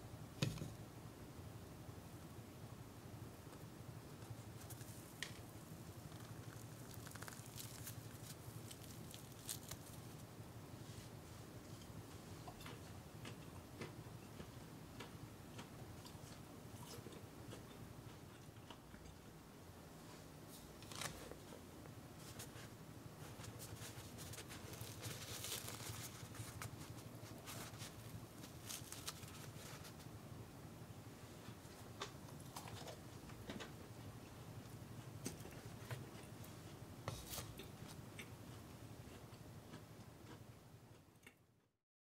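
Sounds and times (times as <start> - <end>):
bread tearing by hand: 6.1 - 10.2, 23.4 - 30.0.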